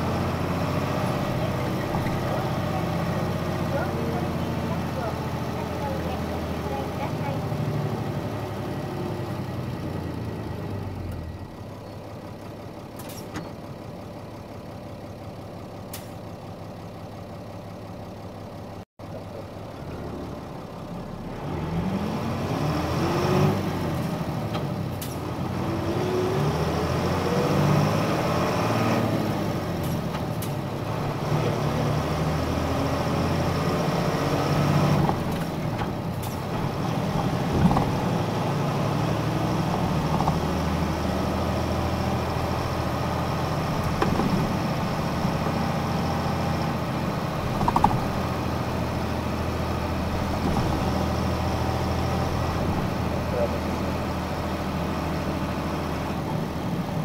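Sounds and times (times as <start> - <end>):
bus diesel engine accelerating: 0.0 - 57.0.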